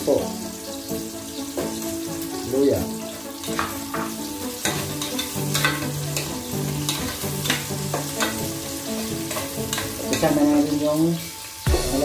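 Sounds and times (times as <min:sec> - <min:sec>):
food sizzling in oil: 0:00.0 - 0:12.0
spatula scraping pot: 0:03.1 - 0:10.4.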